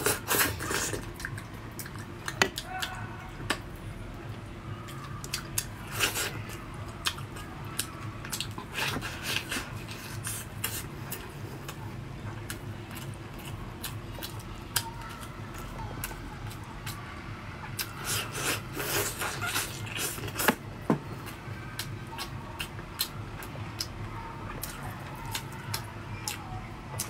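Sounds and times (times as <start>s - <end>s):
wet chewing: 0.0s - 3.6s, 4.8s - 17.0s, 17.6s - 20.6s.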